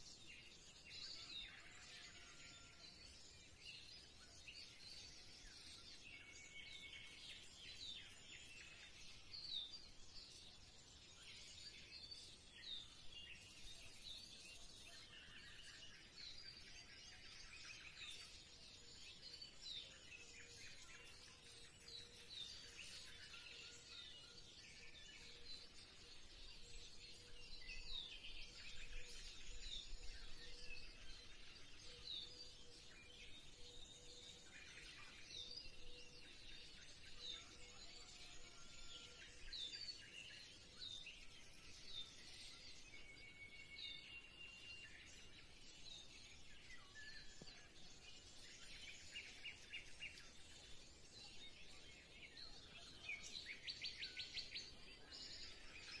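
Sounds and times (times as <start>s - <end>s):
small birds twittering: 0.0s - 56.0s.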